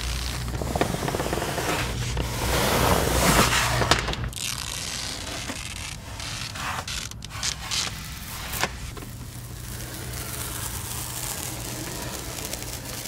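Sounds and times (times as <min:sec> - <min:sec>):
plastic film peeling off: 0:00.0 - 0:02.3, 0:03.4 - 0:13.0.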